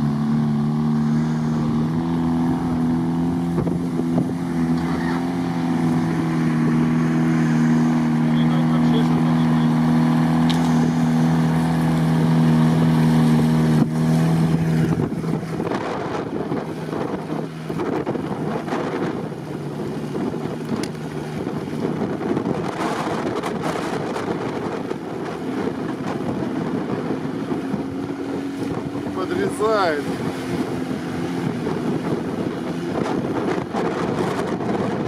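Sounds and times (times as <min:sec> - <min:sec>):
car engine at high revs: 0:00.0 - 0:35.0
rough rushing noise: 0:00.0 - 0:35.0
wind buffeting microphone: 0:00.1 - 0:35.0.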